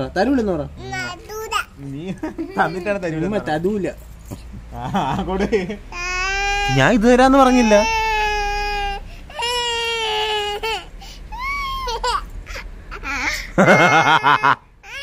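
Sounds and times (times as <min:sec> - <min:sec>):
toddler crying: 0:02.6 - 0:03.3, 0:06.0 - 0:15.0.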